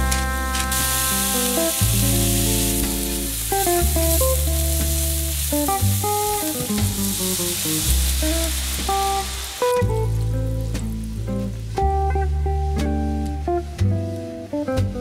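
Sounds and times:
food sizzling in a frying pan: 0:00.0 - 0:11.3
background music with bass line: 0:00.0 - 0:15.0.

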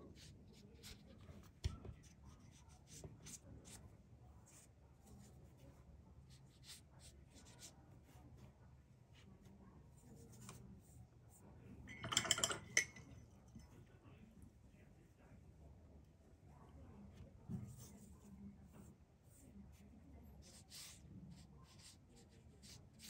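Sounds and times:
paintbrush strokes on paper: 0:00.0 - 0:01.3, 0:01.9 - 0:11.6, 0:16.5 - 0:23.0.

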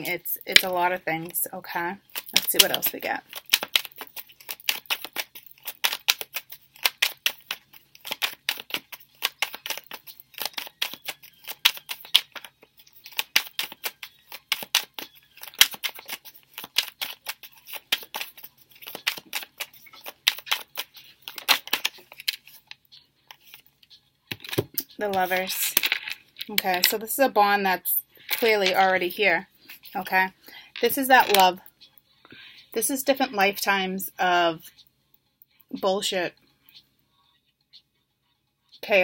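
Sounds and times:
cards being shuffled: 0:00.4 - 0:01.4, 0:02.1 - 0:23.7, 0:24.3 - 0:27.0, 0:28.2 - 0:29.1, 0:30.8 - 0:31.5.

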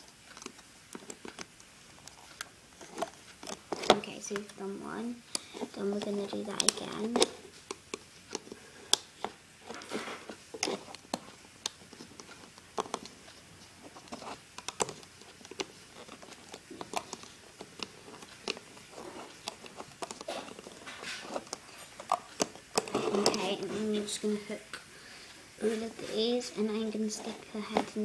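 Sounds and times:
rubber bands clicking on plastic pegs: 0:05.3 - 0:09.8, 0:14.1 - 0:23.4.

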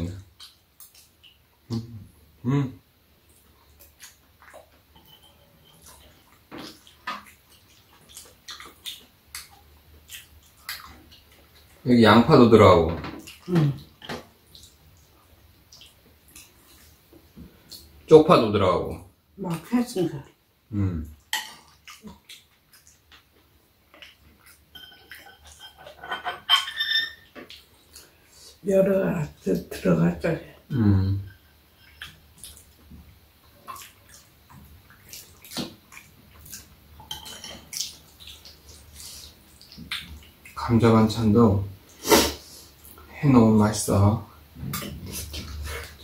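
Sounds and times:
utensils clinking against bowls: 0:05.0 - 0:06.2, 0:24.7 - 0:27.3, 0:37.0 - 0:37.7
wet chewing and lip-smacking: 0:05.8 - 0:11.8, 0:21.5 - 0:25.2.

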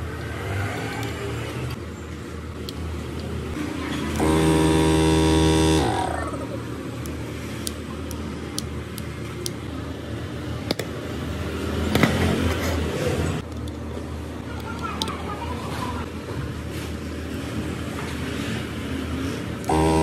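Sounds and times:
compressor motor humming: 0:04.1 - 0:06.5, 0:19.6 - 0:20.0.

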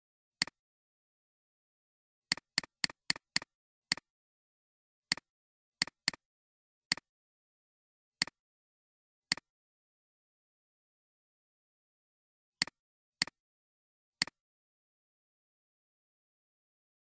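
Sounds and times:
computer mouse clicks: 0:05.1 - 0:06.2.

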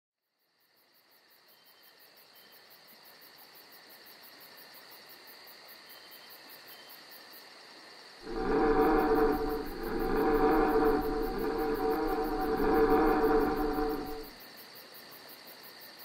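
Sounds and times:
steady high whine: 0:08.2 - 0:14.3
loud deep sound: 0:08.3 - 0:14.3.

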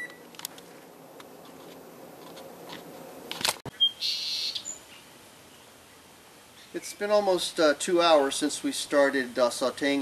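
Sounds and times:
high bird chirp: 0:03.7 - 0:05.0.

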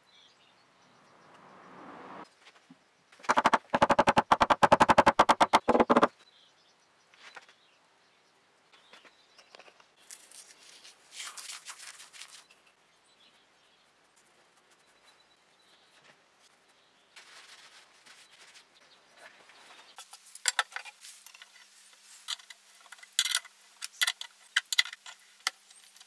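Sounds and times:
rapid sharp clicks: 0:03.2 - 0:06.1.

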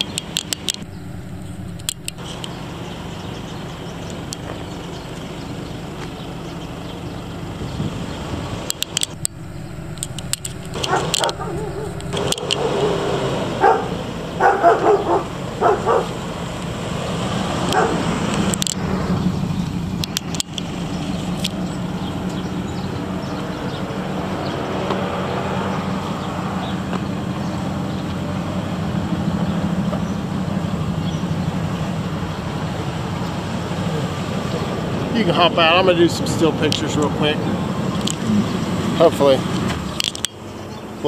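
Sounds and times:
sharp clicks: 0:00.0 - 0:02.6, 0:08.7 - 0:12.7, 0:17.7 - 0:18.8, 0:20.0 - 0:20.7
pickup engine running: 0:00.0 - 0:25.0.

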